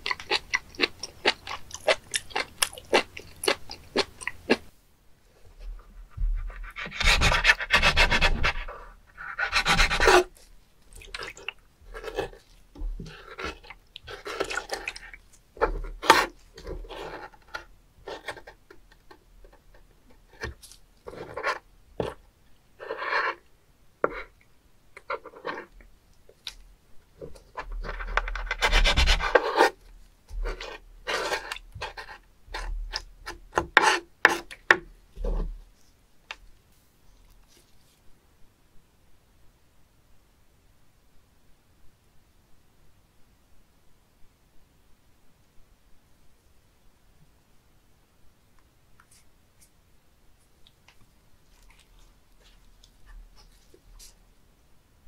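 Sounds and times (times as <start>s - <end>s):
faint wet clicks and squelches: 0.0s - 4.7s, 10.3s - 22.6s, 23.4s - 28.4s, 50.4s - 54.2s
knife scraping wooden board: 6.1s - 10.4s, 15.6s - 18.6s, 27.5s - 34.6s.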